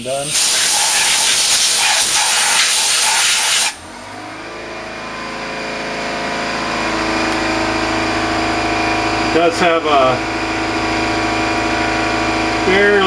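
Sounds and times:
steady machine hum: 0.0s - 13.0s
compressed air hissing: 0.2s - 3.8s.

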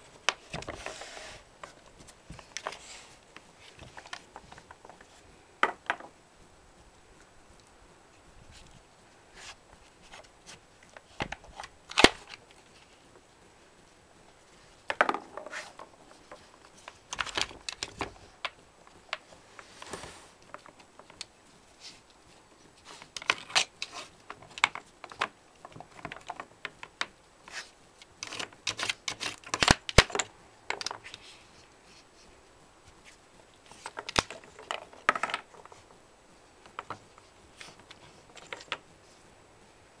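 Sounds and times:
wooden blocks clicking and clattering: 3.7s - 6.2s, 14.8s - 19.3s, 23.0s - 27.2s, 28.0s - 31.2s, 33.7s - 35.9s, 36.6s - 38.9s.

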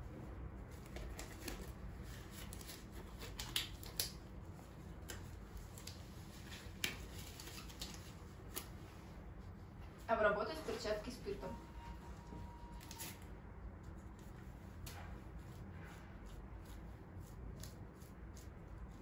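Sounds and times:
rubber gloves rustling and snapping: 0.7s - 9.0s.

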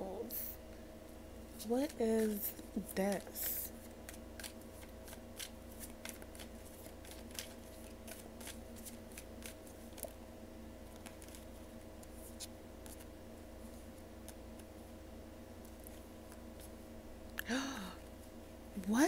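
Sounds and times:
faint steady hum: 0.0s - 19.0s
playing cards being shuffled: 1.6s - 10.2s, 10.9s - 13.1s.

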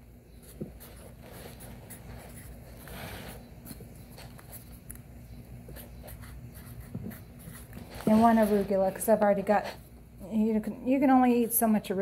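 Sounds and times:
marker scratching on paper: 0.4s - 4.8s, 5.7s - 9.8s.

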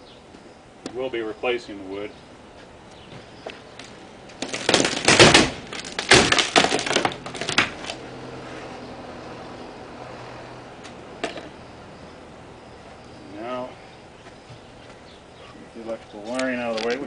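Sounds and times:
wood cracking and splintering: 3.8s - 8.0s.

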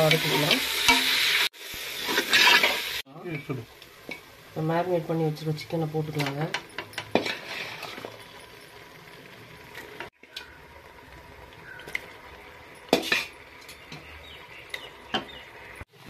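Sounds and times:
metal spoon scraping a pot: 6.1s - 8.6s, 12.8s - 13.8s.

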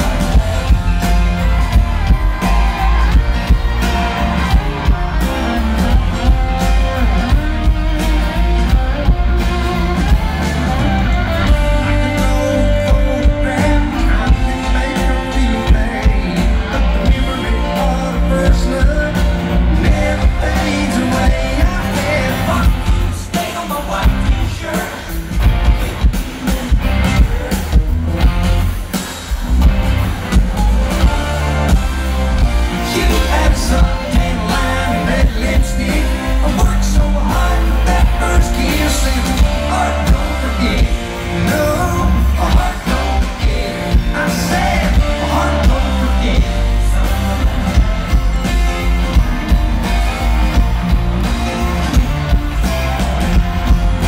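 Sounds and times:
live country rock band: 0.0s - 54.0s
man singing: 10.0s - 26.0s, 32.4s - 49.6s.

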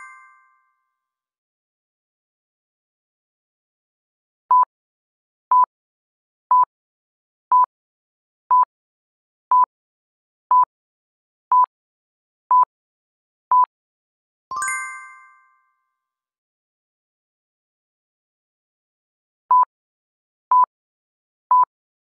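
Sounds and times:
bell-like chime: 0.0s - 0.8s, 14.5s - 15.9s.

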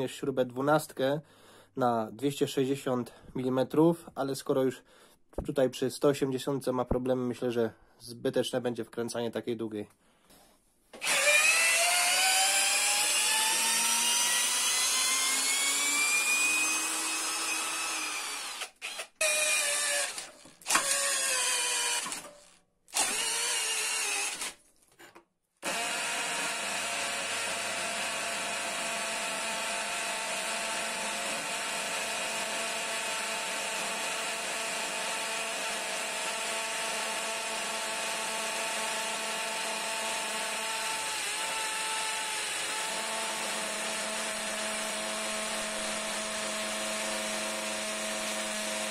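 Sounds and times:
cordless drill running under load: 11.0s - 24.6s, 25.6s - 48.9s.

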